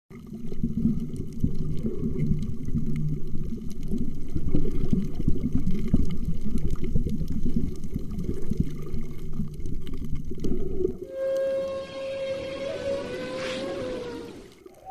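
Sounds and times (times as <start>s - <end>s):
underwater bubbling and gurgling: 0.1s - 14.9s
low hum: 11.0s - 14.9s.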